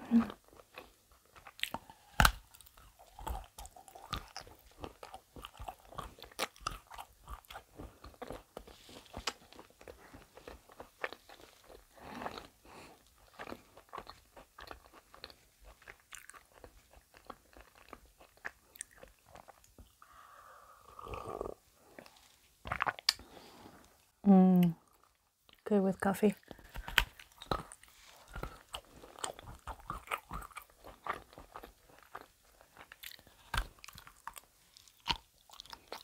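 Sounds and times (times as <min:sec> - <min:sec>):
chewing crunchy chocolate: 0:00.0 - 0:20.0, 0:21.0 - 0:23.3, 0:26.3 - 0:36.0.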